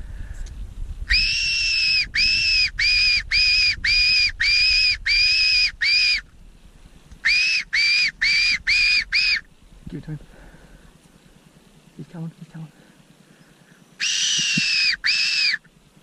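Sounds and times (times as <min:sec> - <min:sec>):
fox whistle squeals: 0:01.1 - 0:06.2, 0:07.2 - 0:09.4, 0:14.0 - 0:15.7.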